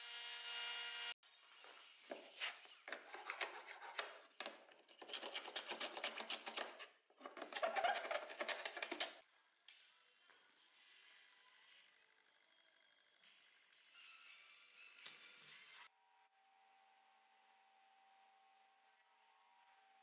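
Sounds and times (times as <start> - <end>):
marking gauge scratching wood: 2.9 - 9.2.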